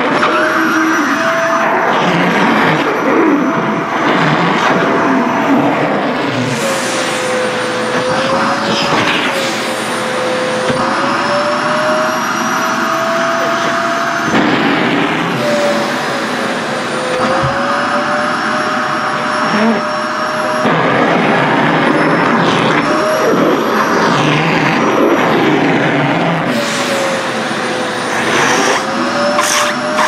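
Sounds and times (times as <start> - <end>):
vacuum cleaner running: 0.0 - 30.0.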